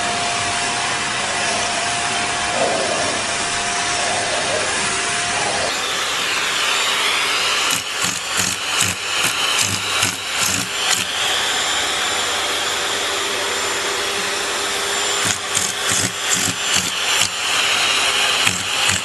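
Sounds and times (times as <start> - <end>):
vacuum cleaner suction: 0.0 - 19.0.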